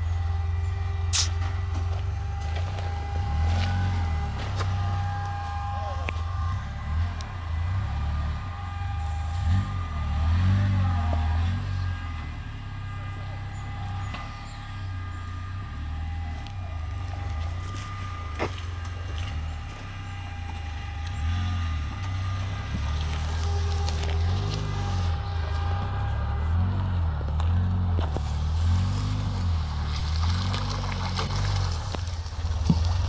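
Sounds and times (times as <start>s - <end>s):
steady whine: 0.0s - 33.0s
vehicle engine running: 0.0s - 33.0s
sharp crack: 1.1s - 1.5s.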